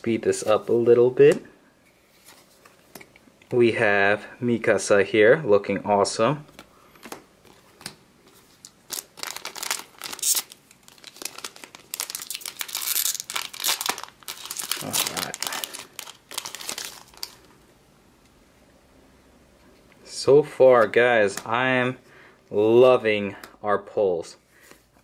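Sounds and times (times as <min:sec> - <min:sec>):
card pack wrapper crinkling and tearing: 0:08.6 - 0:17.5.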